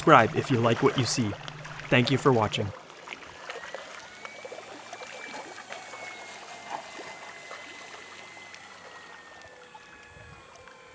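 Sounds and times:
electric motor whine: 0.0 - 10.9
water trickling and lapping: 0.0 - 10.9.

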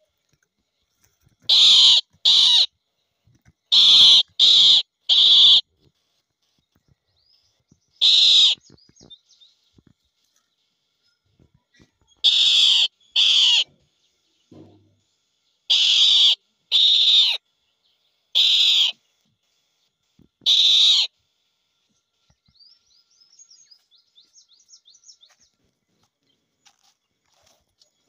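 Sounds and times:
small birds twittering: 0.0 - 28.0
harsh rasping bird calls: 1.4 - 2.8, 3.6 - 5.7, 7.2 - 9.5, 11.8 - 14.2, 15.6 - 17.4, 18.3 - 19.8, 20.4 - 21.3.

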